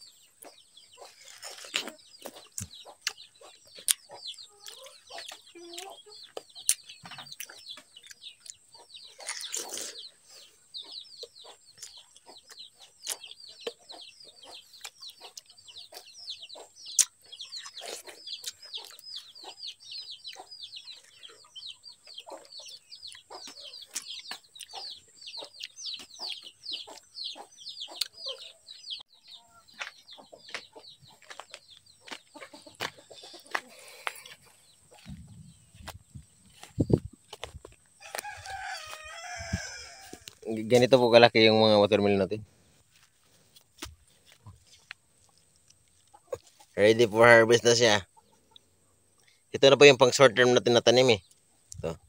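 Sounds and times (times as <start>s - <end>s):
chickens chirping: 0.0s - 52.0s
watermelon being bitten and chewed: 1.0s - 10.1s, 16.9s - 19.2s, 42.9s - 46.8s.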